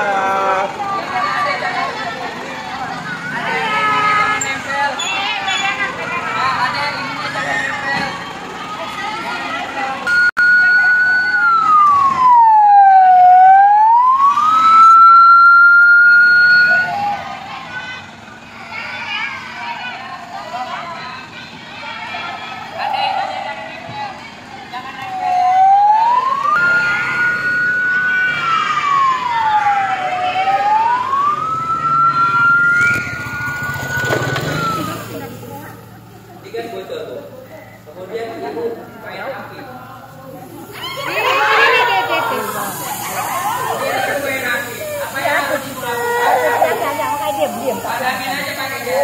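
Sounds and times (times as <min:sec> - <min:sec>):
fire truck siren wailing: 0:06.0 - 0:18.2, 0:24.9 - 0:36.2, 0:40.9 - 0:49.0.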